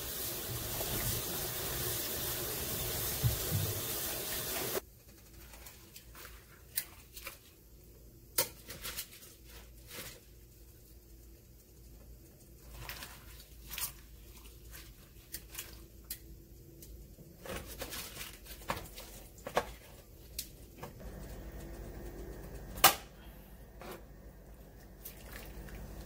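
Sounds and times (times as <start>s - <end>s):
low steady hum: 5.5s - 26.0s.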